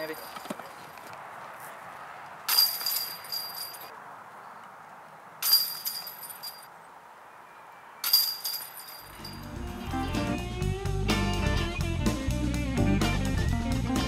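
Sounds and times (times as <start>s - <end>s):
disc golf chains jangling: 0.0s - 0.6s, 2.5s - 4.0s, 5.4s - 6.7s, 8.0s - 10.2s.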